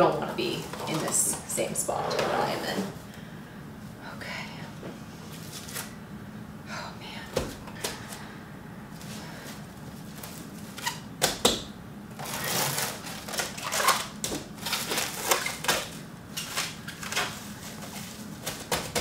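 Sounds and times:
cling wrap crinkling: 12.2s - 18.8s.

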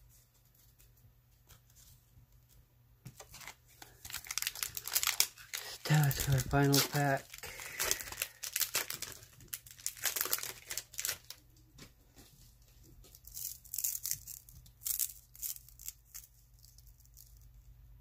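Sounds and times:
wrapper being torn and crinkled: 3.3s - 11.4s, 13.1s - 17.5s.

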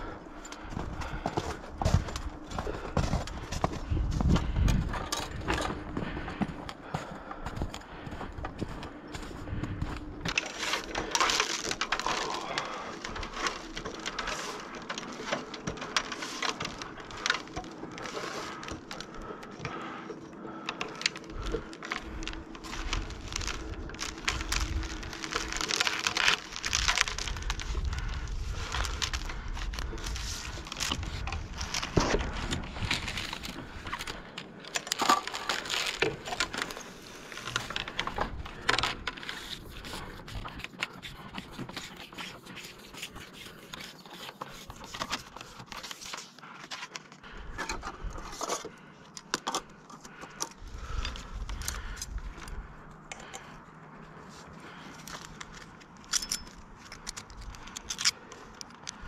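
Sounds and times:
low microphone rumble: 0.0s - 10.3s
clothing and gear rustling: 0.0s - 47.0s.

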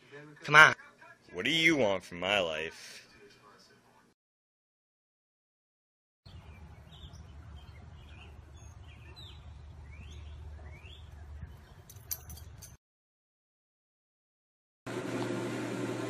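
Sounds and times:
small birds chirping: 6.3s - 12.1s
low outdoor rumble: 6.3s - 12.6s.

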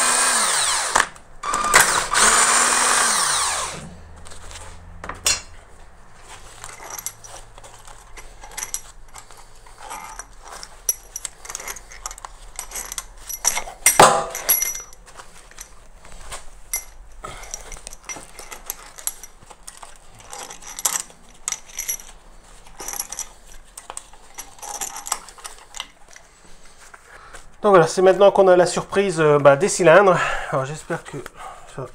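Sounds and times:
bolts clattering: 6.6s - 15.8s, 16.7s - 26.2s
metal bolts clinking: 6.6s - 15.8s, 16.7s - 26.0s.

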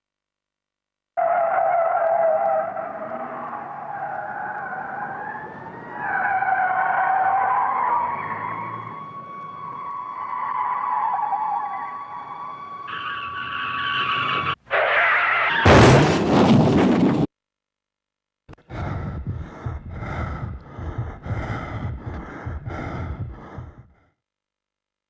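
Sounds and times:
tyres skidding screech: 1.2s - 15.9s
loud crash: 15.6s - 17.3s
rhythmic gasping breaths: 18.5s - 24.2s.

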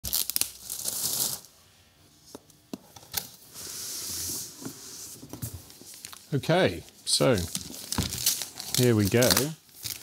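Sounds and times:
plastic wrap crinkling and tearing: 0.0s - 1.5s, 5.9s - 6.4s, 7.1s - 10.0s.

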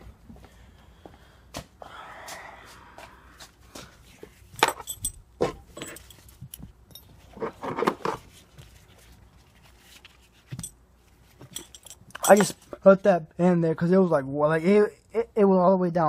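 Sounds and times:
harness metal fittings clinking: 4.6s - 7.4s, 10.5s - 10.8s, 11.4s - 12.6s.

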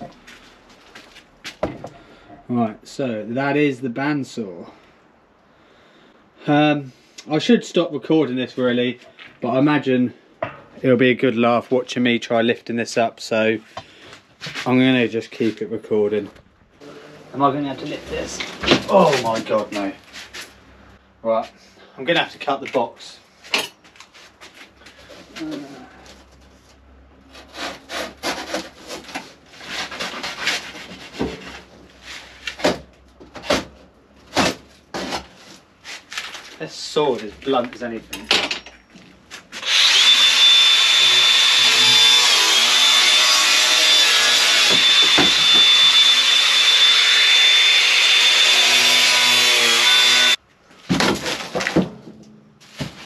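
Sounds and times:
power saw cutting cardboard: 27.3s - 30.7s, 39.6s - 50.4s.

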